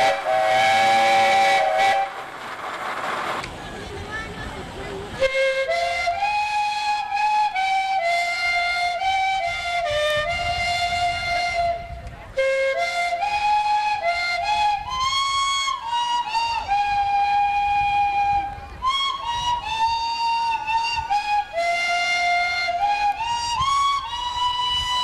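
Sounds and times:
steam calliope playing tune: 0:00.0 - 0:02.3, 0:05.2 - 0:25.0.

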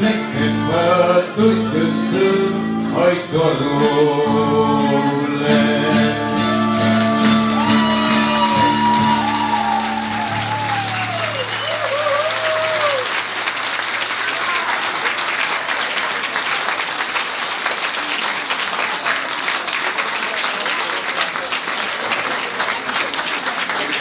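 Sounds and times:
audience applause: 0:06.7 - 0:24.0.

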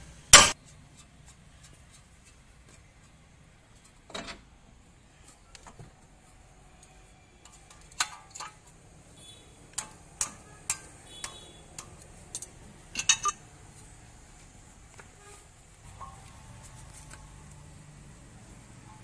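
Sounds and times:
metallic clicks of tools: 0:09.7 - 0:13.4.

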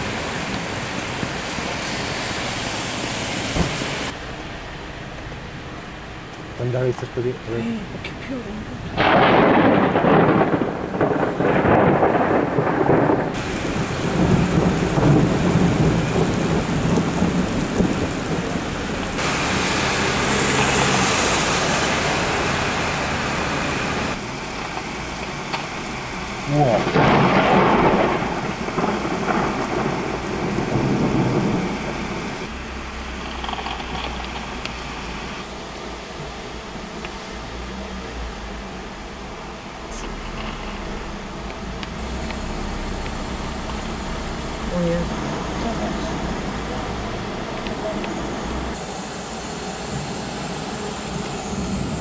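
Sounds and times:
rain: 0:00.0 - 0:52.0
thunder rumbling: 0:08.7 - 0:35.5, 0:37.6 - 0:48.8.

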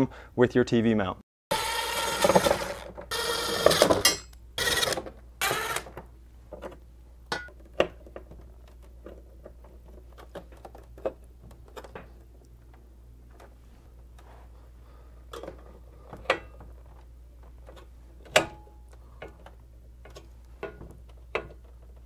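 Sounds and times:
drill motor whirring: 0:01.5 - 0:04.0, 0:04.6 - 0:05.9.

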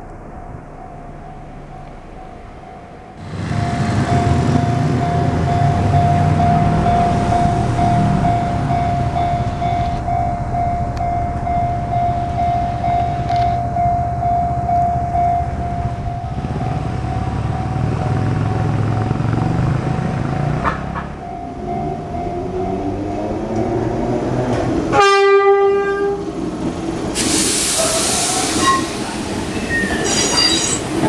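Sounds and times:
approaching train: 0:00.0 - 0:31.0
traffic rumble: 0:00.0 - 0:31.0
level crossing alarm ringing: 0:00.9 - 0:18.8, 0:21.2 - 0:24.1.

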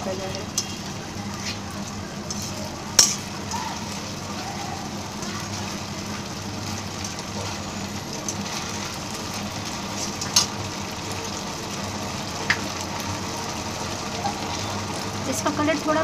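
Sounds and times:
sauce sizzling in a pan: 0:00.0 - 0:16.0
metal ladle stirring: 0:01.4 - 0:03.4.

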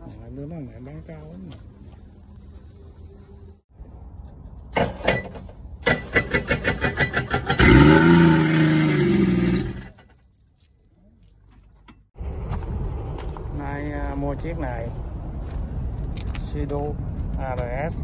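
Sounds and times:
jet ski engine revving: 0:07.4 - 0:09.9.

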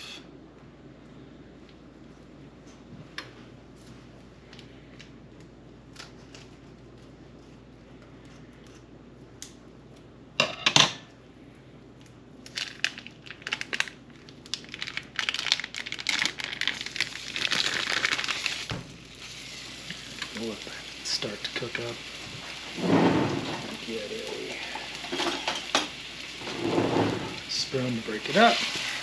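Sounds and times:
plastic wrapper crinkling and tearing: 0:12.4 - 0:18.8.

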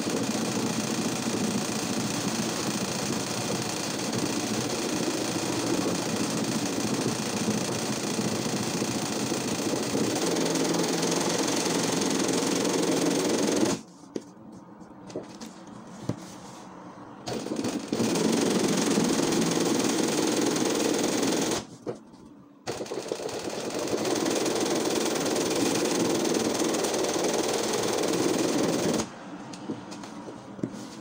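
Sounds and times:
sewing machine running fast: 0:00.0 - 0:13.8, 0:17.3 - 0:21.7, 0:22.7 - 0:29.1.

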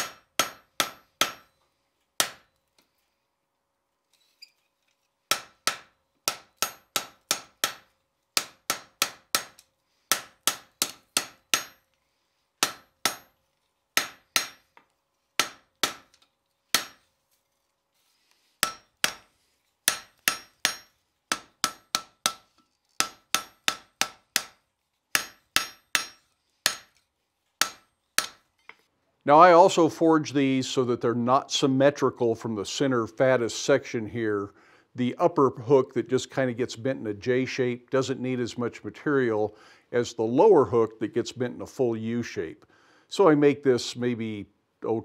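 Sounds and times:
hammer striking metal on anvil: 0:00.0 - 0:01.6, 0:02.2 - 0:02.5, 0:05.3 - 0:11.9, 0:12.6 - 0:13.4, 0:14.0 - 0:14.8, 0:15.4 - 0:16.1, 0:16.7 - 0:17.0, 0:18.6 - 0:19.3, 0:19.9 - 0:27.0, 0:27.6 - 0:28.4.

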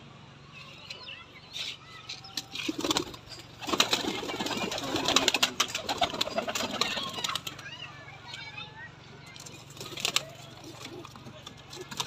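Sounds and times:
wings flapping and rustling: 0:01.6 - 0:07.8, 0:09.3 - 0:12.0
pigeons cooing: 0:02.6 - 0:07.5.

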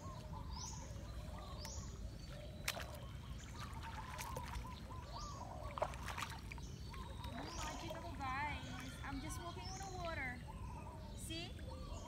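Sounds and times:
footsteps wading through water: 0:00.0 - 0:10.4
birds calling: 0:00.0 - 0:12.0.

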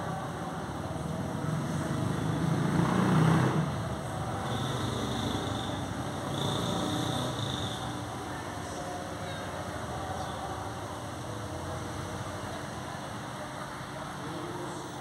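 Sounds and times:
motor vehicle passing: 0:01.4 - 0:08.3.

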